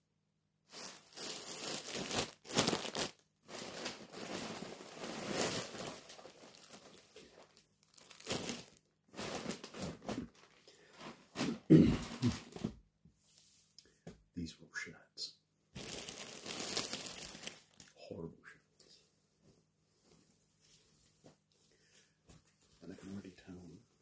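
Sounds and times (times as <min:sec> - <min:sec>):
plastic bags crinkling: 0:00.7 - 0:11.5, 0:15.8 - 0:18.0.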